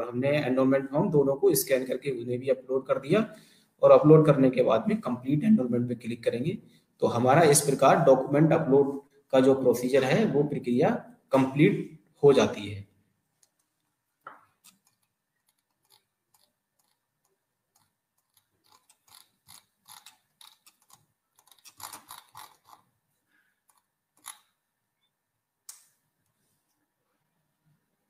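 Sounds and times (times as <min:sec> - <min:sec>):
computer mouse clicking: 0:14.6 - 0:22.8, 0:23.6 - 0:24.6
mouse scroll wheel ticking: 0:14.6 - 0:22.9, 0:23.6 - 0:24.6.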